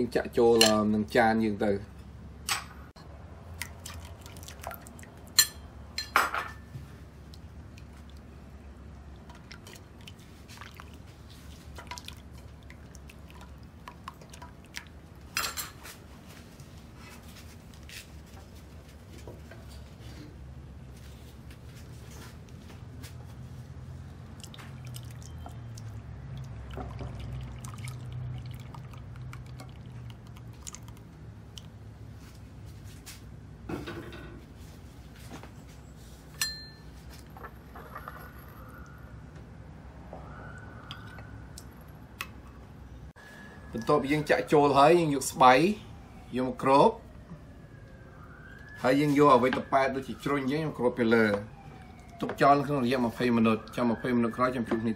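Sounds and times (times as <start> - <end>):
liquid being poured: 3.5 - 5.4, 7.2 - 15.3, 24.0 - 31.8.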